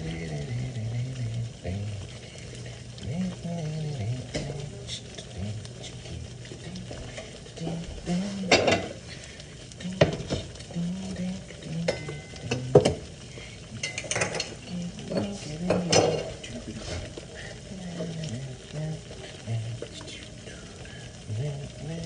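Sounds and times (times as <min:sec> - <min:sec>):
eggs sizzling in a frying pan: 0:00.0 - 0:22.0
cookware clinking and knocking: 0:08.5 - 0:08.9, 0:13.8 - 0:16.3.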